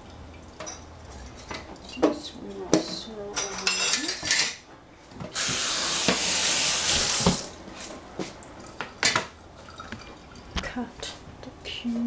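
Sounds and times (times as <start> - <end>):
tap running into metal sink: 5.3 - 7.5.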